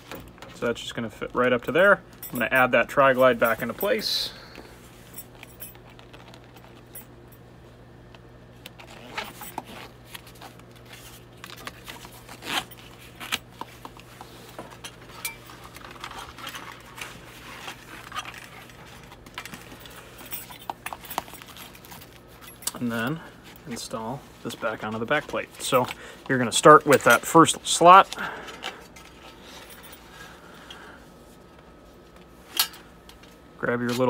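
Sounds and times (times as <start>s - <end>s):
metal hardware clinks: 2.1s - 4.3s, 26.8s - 27.5s.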